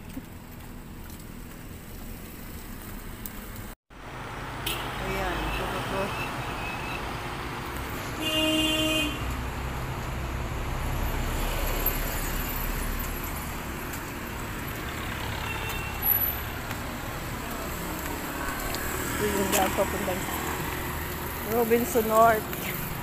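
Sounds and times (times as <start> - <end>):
road traffic rumbling: 0.0 - 23.0
vehicle horn: 4.6 - 7.0, 8.0 - 9.4, 15.0 - 16.3.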